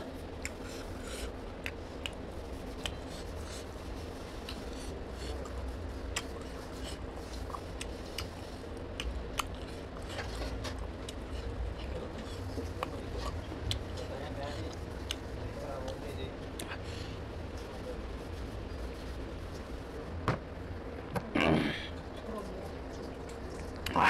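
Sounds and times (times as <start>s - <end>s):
steady low hum: 0.0s - 24.0s
chewing and mouth smacks: 0.2s - 3.4s, 4.4s - 14.0s, 14.6s - 16.8s, 22.8s - 24.0s.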